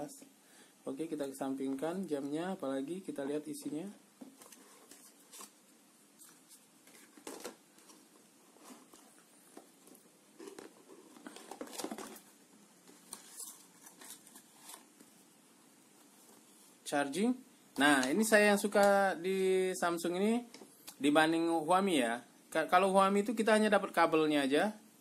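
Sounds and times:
cardboard box rustling and scraping: 0:10.4 - 0:12.3.

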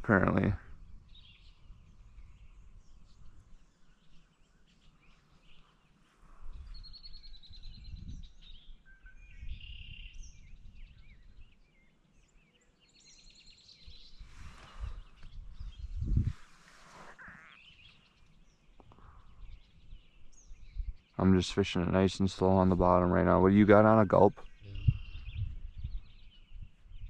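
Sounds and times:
distant songbirds singing: 0:00.0 - 0:27.0
faint low rumble: 0:24.4 - 0:26.1.

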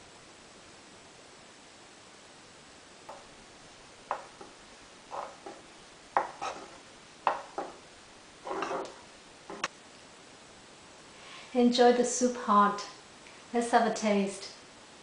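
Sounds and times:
spoon knocking against pot: 0:04.1 - 0:07.8
spoon scraping rattle: 0:04.1 - 0:07.8, 0:08.4 - 0:09.7.

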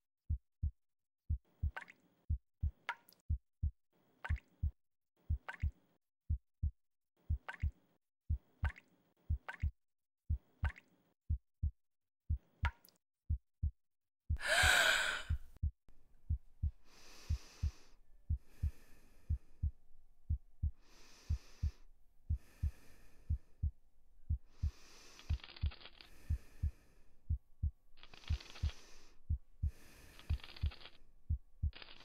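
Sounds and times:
heartbeat thumping: 0:09.3 - 0:09.7, 0:14.3 - 0:24.8, 0:30.4 - 0:31.8
heavy breathing: 0:14.4 - 0:15.5, 0:16.8 - 0:19.7.

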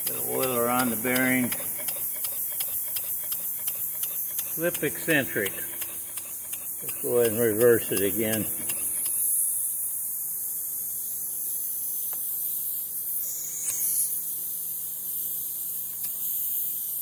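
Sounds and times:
steady engine hum: 0:00.0 - 0:09.1
faint clicks of flywheel: 0:00.0 - 0:09.2
high hiss of air: 0:09.2 - 0:17.0.

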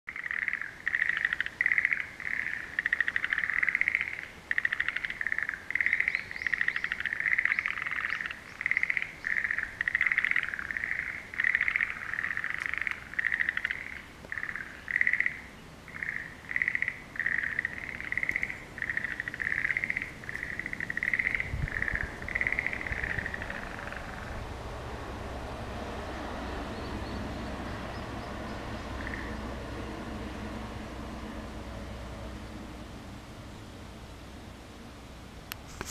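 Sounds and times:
frogs calling: 0:00.1 - 0:24.6, 0:26.6 - 0:29.8.

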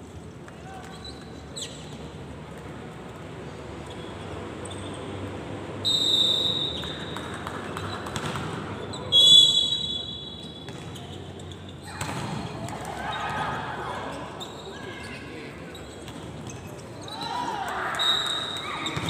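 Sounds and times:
court noise: 0:00.1 - 0:19.0
referee's whistle blasts: 0:05.8 - 0:07.2, 0:09.0 - 0:10.7, 0:17.9 - 0:19.0.

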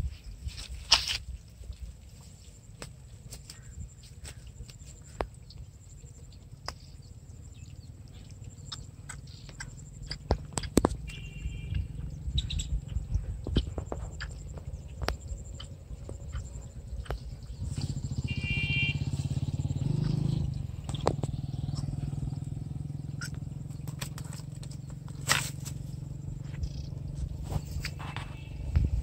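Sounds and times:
wind rumble on microphone: 0:00.0 - 0:02.6, 0:10.0 - 0:29.0
handling clicks and rustles: 0:23.2 - 0:29.0.

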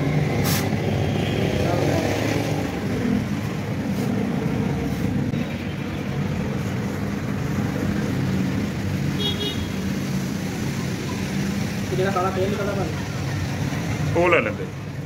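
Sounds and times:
road traffic hum: 0:00.0 - 0:15.0
vehicle horn beep: 0:09.2 - 0:09.8.

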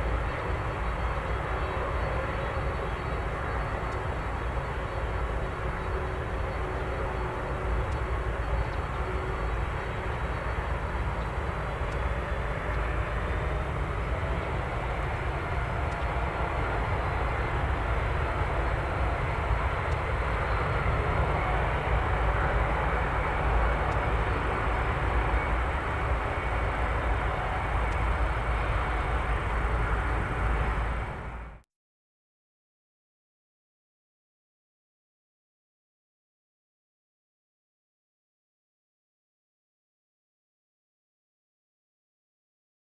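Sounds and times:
jet engines roaring at takeoff: 0:00.0 - 0:31.6.

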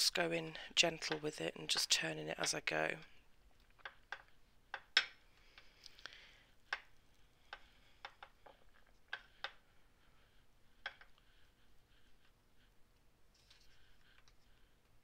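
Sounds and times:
clay roller clicking on ceramic tile: 0:01.0 - 0:02.7, 0:03.7 - 0:05.7, 0:06.6 - 0:09.6.

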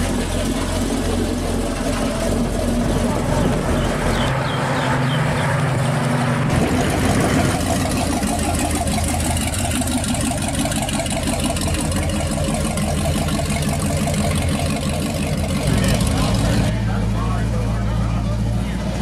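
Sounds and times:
car engine running at low speed: 0:00.0 - 0:19.0.

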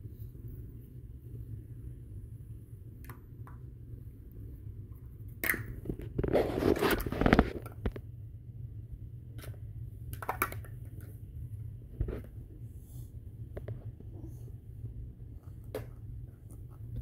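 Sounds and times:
low steady hum: 0:00.0 - 0:17.0
rustling and clattering: 0:05.7 - 0:08.1
plastic toy blocks clacking: 0:09.4 - 0:11.0.

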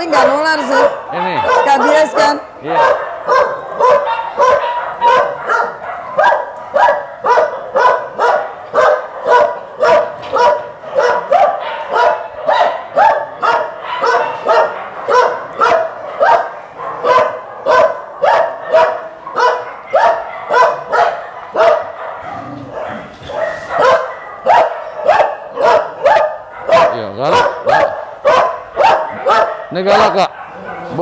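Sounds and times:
dog barking: 0:00.0 - 0:31.0.

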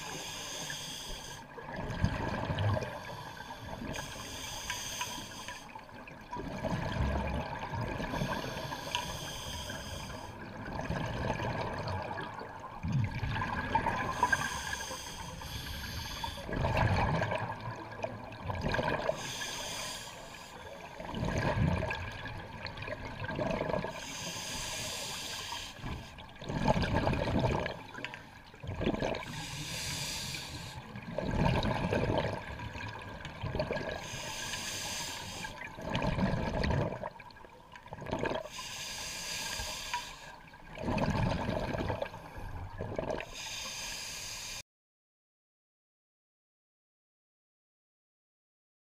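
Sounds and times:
regulator hiss on inhale: 0:00.0 - 0:01.5, 0:03.0 - 0:05.8, 0:08.1 - 0:10.4, 0:14.1 - 0:16.5, 0:19.2 - 0:20.8, 0:23.9 - 0:26.2, 0:29.3 - 0:30.9, 0:34.0 - 0:35.6, 0:38.5 - 0:40.5, 0:43.2 - 0:44.6
exhaled bubbles rushing: 0:10.6 - 0:14.2, 0:16.5 - 0:19.2, 0:21.0 - 0:24.0, 0:26.4 - 0:29.3, 0:31.0 - 0:34.0, 0:35.7 - 0:37.2, 0:37.8 - 0:38.5, 0:40.7 - 0:43.3.

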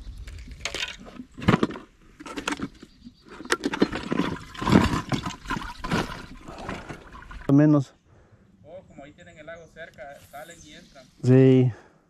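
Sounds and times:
water splashing and sloshing: 0:00.6 - 0:07.5.

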